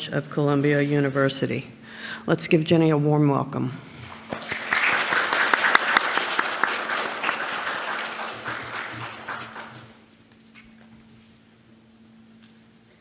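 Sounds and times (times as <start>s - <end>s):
audience applauding: 4.2s - 10.0s.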